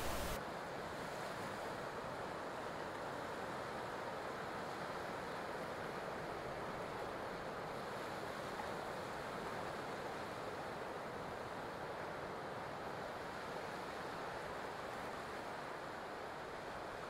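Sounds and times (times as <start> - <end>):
ocean surf: 0.0 - 0.4.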